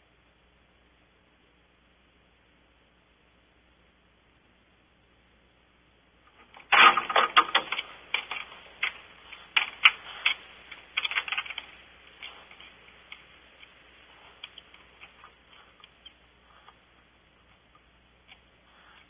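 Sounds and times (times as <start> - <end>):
owl feet scratching wooden perch: 6.5 - 19.0.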